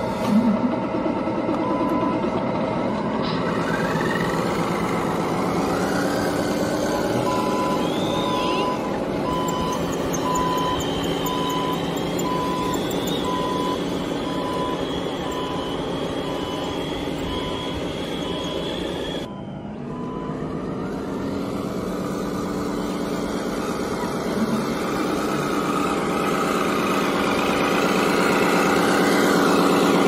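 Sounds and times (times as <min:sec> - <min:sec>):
model excavator motor drone: 0:00.0 - 0:30.0
motor whines: 0:03.3 - 0:30.0
short warning beeps: 0:06.9 - 0:19.3.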